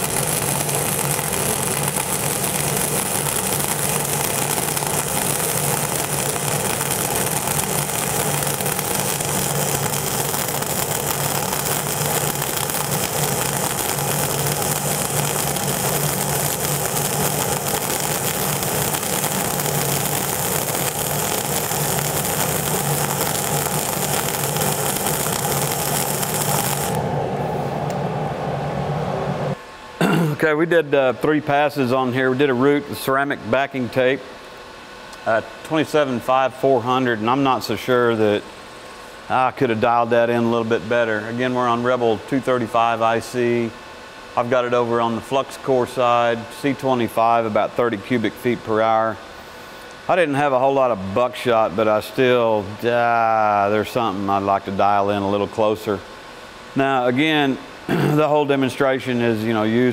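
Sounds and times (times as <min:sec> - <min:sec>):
welding arc: 0:00.0 - 0:27.2
low hum: 0:00.0 - 0:30.1.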